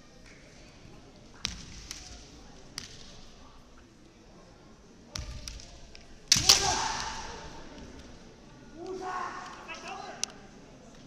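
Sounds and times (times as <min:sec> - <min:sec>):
bamboo swords clacking: 0:01.4 - 0:03.4, 0:05.2 - 0:08.2
bamboo sword strike crack: 0:06.3 - 0:07.4.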